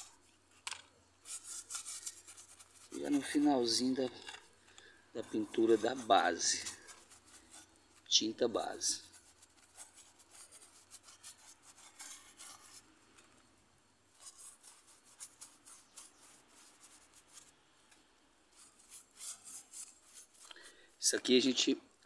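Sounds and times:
paintbrush scratching on concrete: 1.2 - 4.5, 5.2 - 12.9, 14.1 - 17.6, 18.5 - 20.5.

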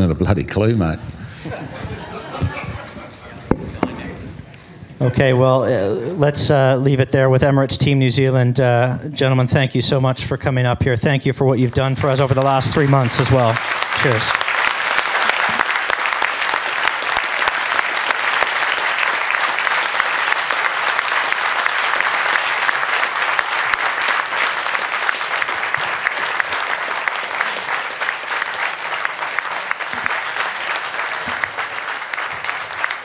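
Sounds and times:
audience applause: 1.6 - 4.6, 11.8 - 33.0.

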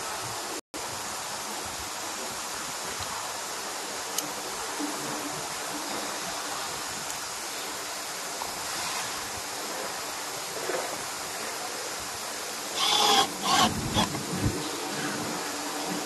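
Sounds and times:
background hiss: 0.0 - 16.0
cordless screwdriver running: 12.8 - 14.2.

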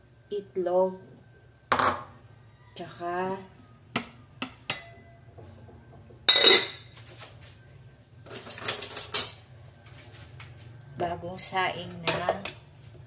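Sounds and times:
metal pot lid clanging: 6.3 - 6.8
pot and utensils clattering: 6.3 - 7.0, 8.3 - 9.4.

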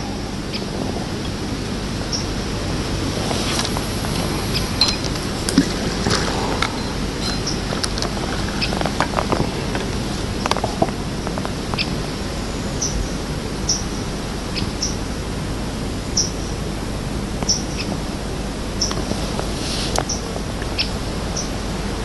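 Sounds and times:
bird chirping: 0.0 - 0.9, 2.1 - 2.4, 3.4 - 10.8, 11.7 - 15.1, 16.2 - 16.6, 17.4 - 18.0, 19.8 - 21.6
background hiss: 0.0 - 22.0.

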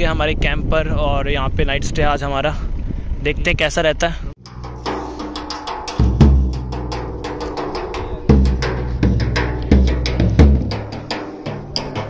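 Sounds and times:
dhol drum bass strokes: 4.4 - 12.0
light drum taps: 4.5 - 12.0.

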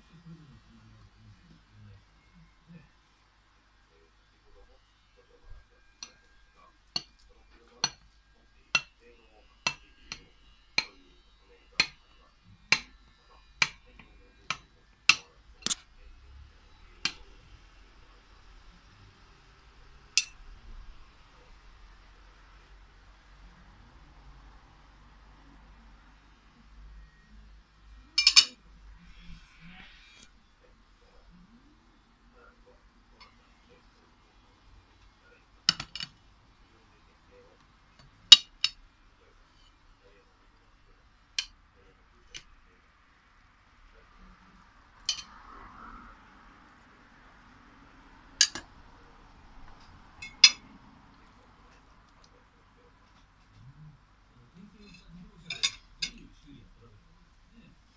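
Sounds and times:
knife clinking on ceramic plate: 28.2 - 28.6, 45.1 - 45.3, 54.8 - 56.2.

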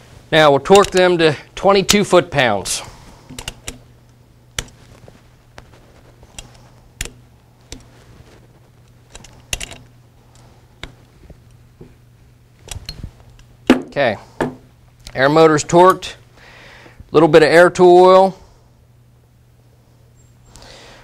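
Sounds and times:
torque wrench clicking: 0.7 - 1.1.

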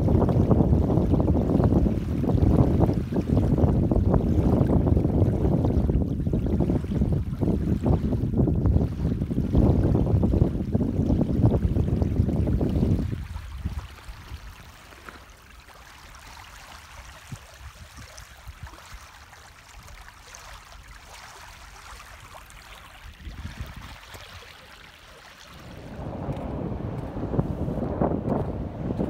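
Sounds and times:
wind buffeting microphone: 0.0 - 14.9, 21.6 - 24.8, 25.4 - 29.0
floodwater rushing: 13.0 - 29.0.

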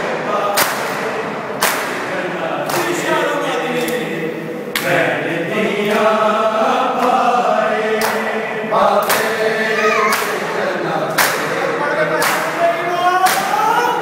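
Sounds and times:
men chanting together: 0.0 - 14.0
hands slapping chests: 1.6 - 2.1, 8.0 - 8.2, 9.0 - 9.3, 10.1 - 10.4, 11.1 - 11.5, 12.2 - 12.6, 13.3 - 13.6.

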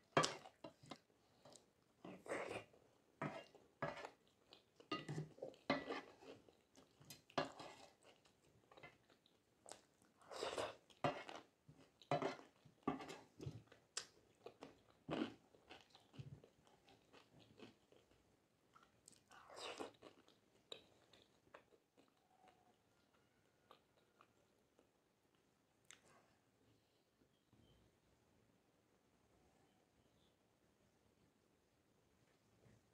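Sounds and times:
person chewing food: 0.0 - 26.2.

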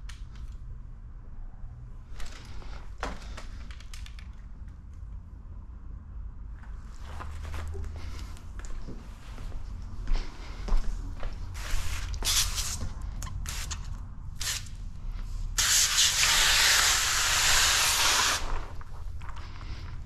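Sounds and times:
spray wand hissing: 11.6 - 14.7, 15.6 - 18.6.

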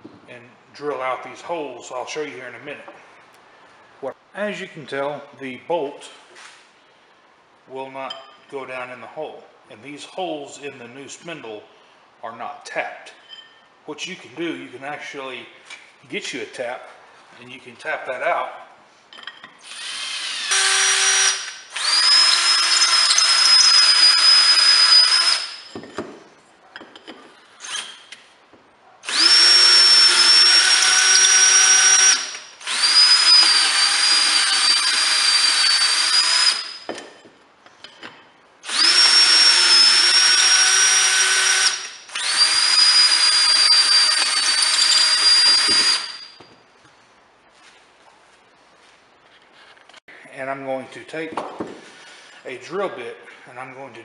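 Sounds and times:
cordless drill whining: 19.6 - 25.8, 29.0 - 37.0, 38.6 - 46.4.

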